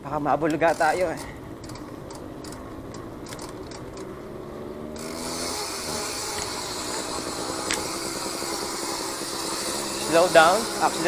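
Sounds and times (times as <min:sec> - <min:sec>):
tyre and road noise: 0:00.0 - 0:11.0
bicycle freewheel ticking: 0:00.5 - 0:04.2, 0:05.0 - 0:11.0.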